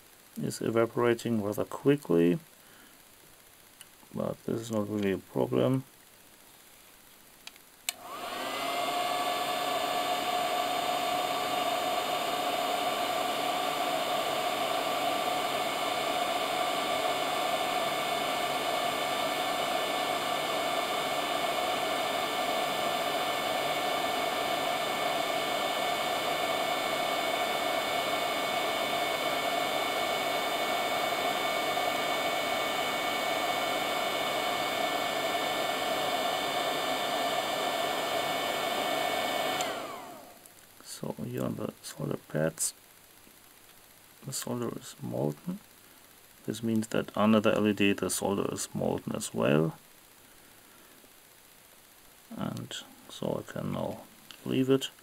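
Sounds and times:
heat gun blowing air with a whine: 7.9 - 40.5.

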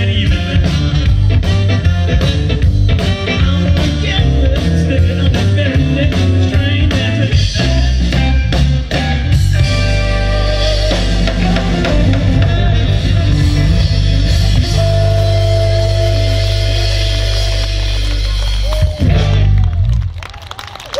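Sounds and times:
live blues band: 0.0 - 20.4.

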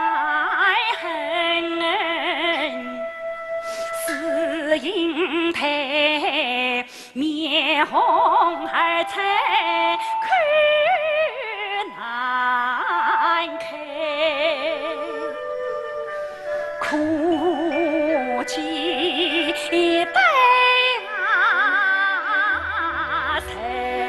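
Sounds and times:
woman singing opera: 0.0 - 16.2, 16.8 - 24.0
instrumental accompaniment: 12.3 - 24.0.

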